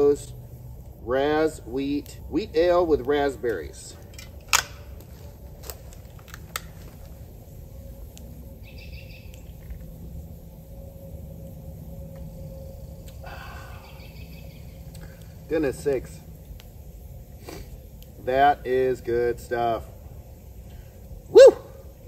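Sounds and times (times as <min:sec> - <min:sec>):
low woodland rumble: 0:00.0 - 0:22.0
bird chirping: 0:07.4 - 0:10.0, 0:11.9 - 0:16.6
faint clicks: 0:13.0 - 0:13.3, 0:14.8 - 0:16.8, 0:17.4 - 0:18.2.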